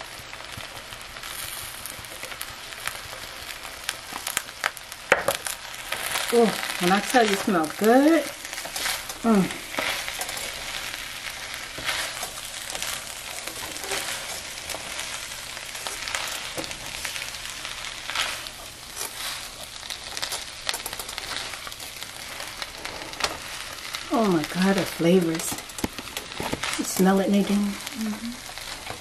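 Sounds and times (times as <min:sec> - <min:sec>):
rice sizzling in a frying pan: 0:00.0 - 0:29.0
spatula scraping through rice: 0:05.9 - 0:24.0.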